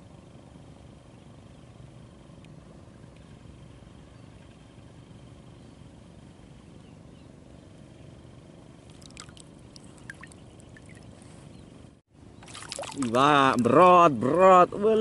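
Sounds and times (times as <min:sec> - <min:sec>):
water lapping gently: 0:08.8 - 0:11.7, 0:12.4 - 0:13.9
water plinks and ticks: 0:08.9 - 0:11.0, 0:12.4 - 0:13.7.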